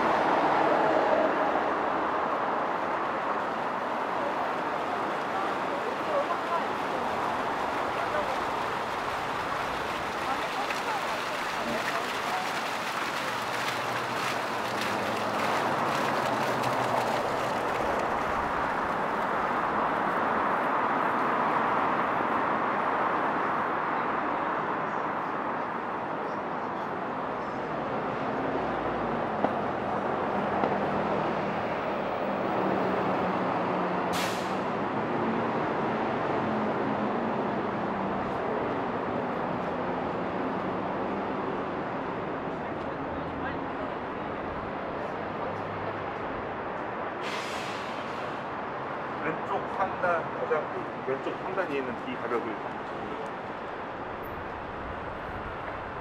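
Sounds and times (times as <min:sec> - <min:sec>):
vehicles passing on busy road: 0:00.0 - 0:56.0
short sharp hiss: 0:34.2 - 0:34.6, 0:47.2 - 0:48.4.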